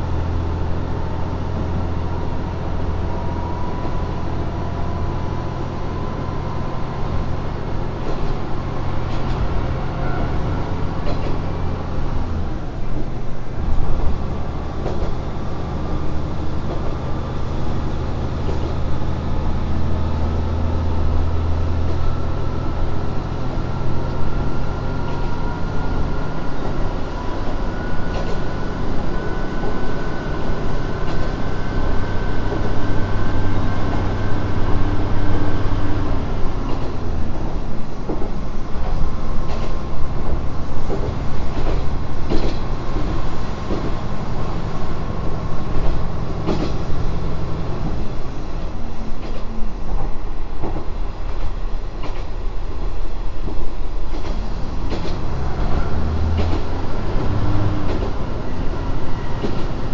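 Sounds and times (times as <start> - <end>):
diesel railcar engine drone: 0.0 - 59.9
train rolling noise: 0.0 - 59.9
sharp clicks from rails: 8.0 - 9.7, 11.0 - 13.2, 13.8 - 15.3, 16.6 - 17.2, 17.9 - 18.9, 26.6 - 28.6, 31.0 - 31.5, 32.4 - 37.4, 38.0 - 48.1, 49.2 - 52.4, 53.4 - 58.7, 59.3 - 59.9.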